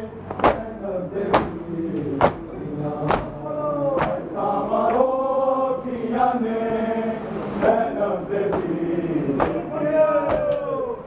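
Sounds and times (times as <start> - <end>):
men chanting a lament: 0.0 - 11.0
chest-beating slaps: 0.3 - 0.7, 3.1 - 3.4, 4.0 - 4.2, 8.5 - 8.8, 9.4 - 9.6.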